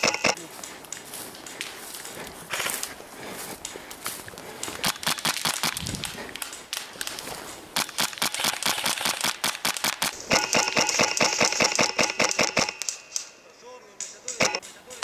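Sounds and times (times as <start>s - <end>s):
footsteps crunching through twigs: 0.0s - 8.0s
airsoft rifle firing rapidly: 4.8s - 5.8s, 7.8s - 13.0s, 14.3s - 14.6s.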